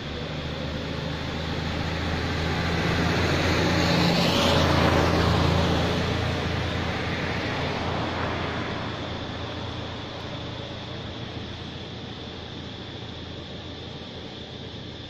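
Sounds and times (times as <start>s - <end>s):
vehicle driving past: 0.0s - 11.7s.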